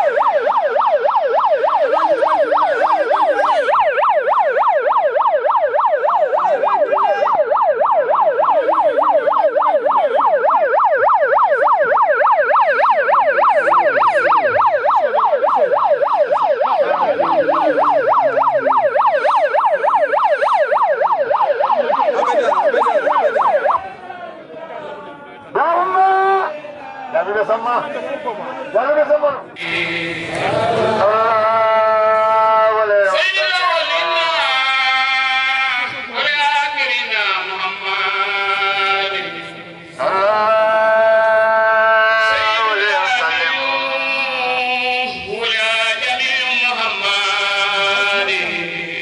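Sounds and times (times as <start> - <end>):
electronic yelp siren: 0.0 - 24.0, 29.6 - 49.0.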